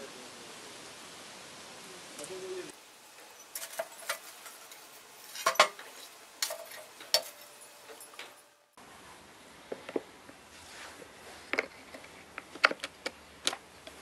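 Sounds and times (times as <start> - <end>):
metal clinking on charcoal: 3.1 - 8.6.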